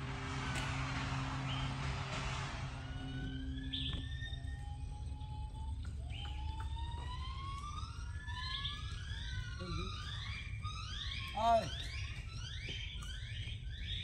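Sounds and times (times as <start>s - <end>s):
steady low rumble: 0.0s - 11.1s
rising siren-like whistles: 0.0s - 14.0s.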